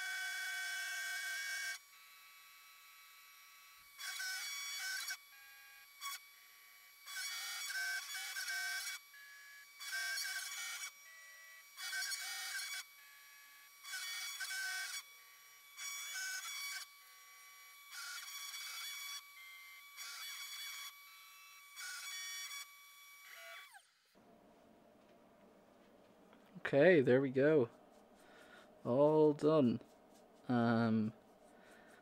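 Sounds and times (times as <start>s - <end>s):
router cutting metal: 0.0s - 23.9s.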